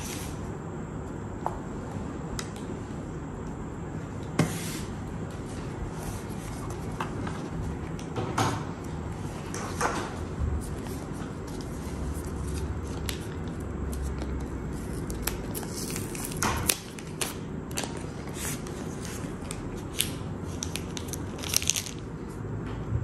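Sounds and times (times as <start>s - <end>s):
plastic wrapping crinkling: 14.8s - 22.0s.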